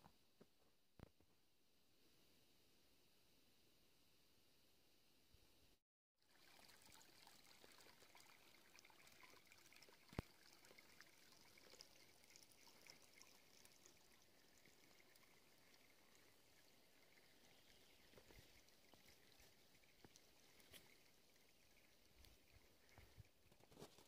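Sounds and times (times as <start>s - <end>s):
stream trickling: 6.2s - 24.0s.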